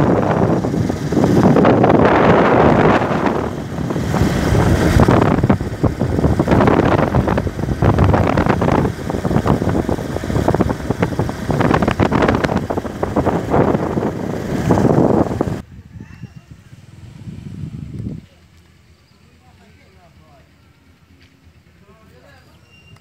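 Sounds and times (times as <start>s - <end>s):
wind buffeting microphone: 0.0s - 18.4s
motorcycle road noise: 0.0s - 23.0s.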